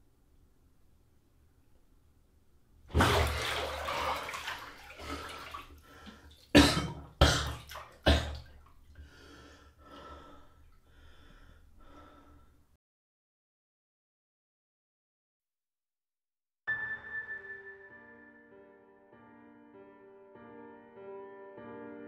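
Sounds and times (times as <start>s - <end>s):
water splashing in bathtub: 2.9s - 11.4s
man breathing heavily: 5.0s - 6.4s, 9.0s - 12.7s
man gasping: 9.0s - 12.6s.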